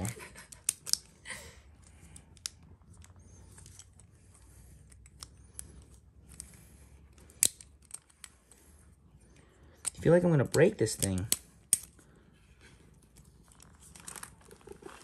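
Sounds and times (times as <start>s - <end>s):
small plastic clicks: 0.5s - 1.2s.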